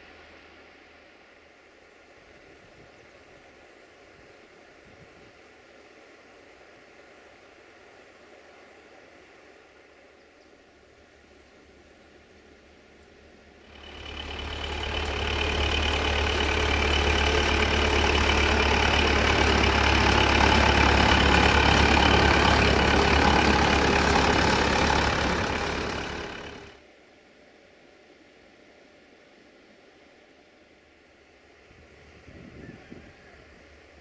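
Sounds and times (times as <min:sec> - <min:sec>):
tractor diesel engine running: 0:13.7 - 0:26.8.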